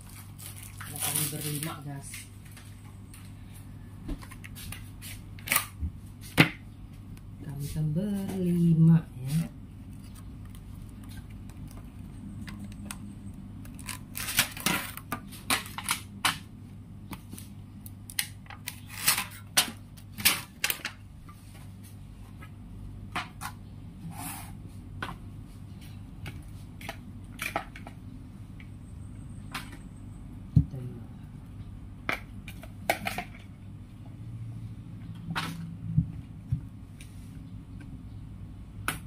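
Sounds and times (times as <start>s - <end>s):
foil trays crinkling: 0.0s - 2.8s, 8.2s - 16.5s, 17.2s - 21.9s
low hum: 22.1s - 38.8s.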